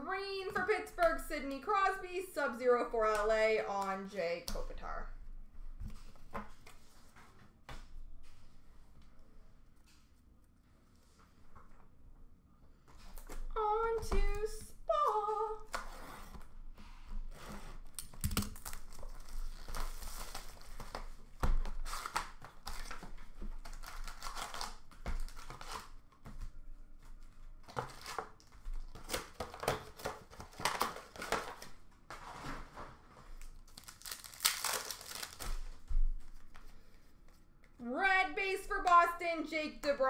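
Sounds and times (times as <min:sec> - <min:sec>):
foil wrappers crinkling and tearing: 0:17.9 - 0:26.0, 0:27.7 - 0:31.8, 0:33.3 - 0:35.8.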